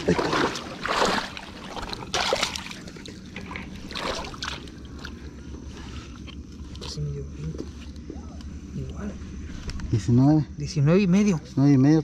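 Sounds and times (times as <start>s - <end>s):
water splashing around legs: 0.0s - 5.2s.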